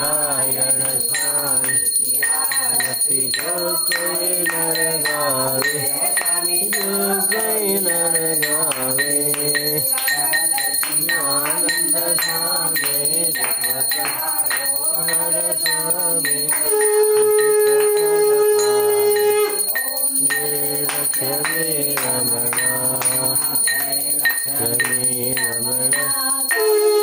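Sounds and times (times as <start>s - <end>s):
bell ringing: 0.0s - 27.0s
voices singing devotional song: 0.0s - 27.0s.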